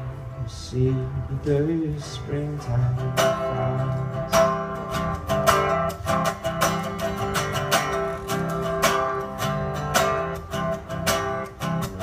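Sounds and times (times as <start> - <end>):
guitars strummed together: 0.0 - 12.0.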